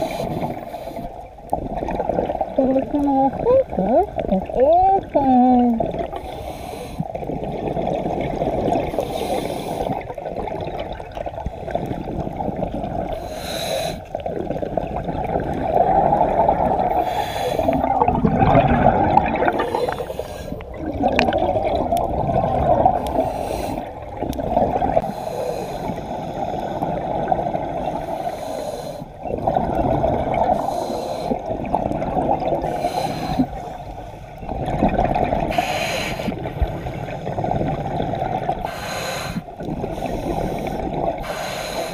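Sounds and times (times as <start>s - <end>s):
diver breathing through regulator: 0.0s - 1.2s, 6.1s - 7.3s, 8.8s - 10.2s, 13.1s - 14.2s, 16.8s - 18.1s, 19.4s - 20.8s, 22.9s - 24.1s, 24.9s - 27.0s, 27.8s - 29.2s, 30.4s - 31.6s, 32.5s - 34.4s, 35.4s - 37.9s, 38.5s - 41.9s
rush of exhaled bubbles: 0.0s - 2.6s, 7.0s - 28.1s, 29.2s - 33.7s, 34.3s - 41.3s.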